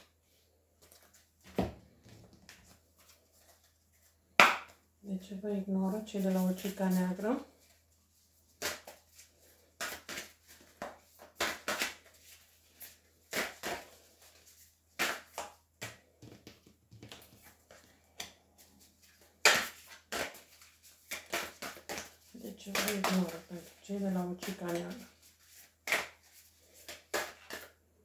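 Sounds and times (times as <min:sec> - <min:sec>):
cards being shuffled: 0:08.5 - 0:27.8.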